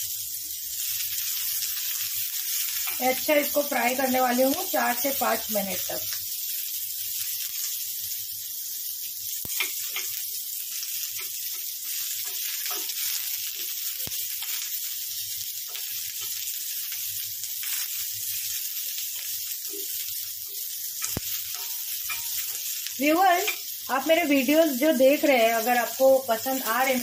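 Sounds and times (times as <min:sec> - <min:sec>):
onions sizzling in oil: 0:00.0 - 0:27.0
spatula clicking on metal: 0:11.2 - 0:13.0, 0:21.0 - 0:22.7.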